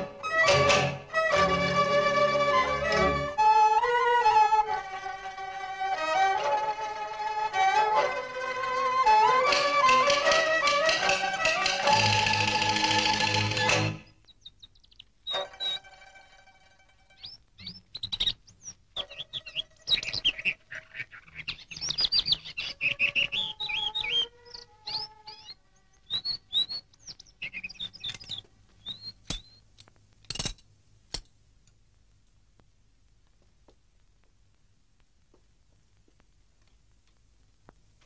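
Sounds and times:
small birds chirping: 0:14.0 - 0:16.2, 0:17.0 - 0:29.7.

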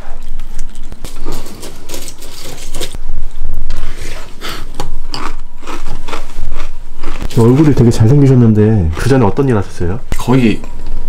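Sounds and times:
cereal crunching: 0:05.2 - 0:07.8.

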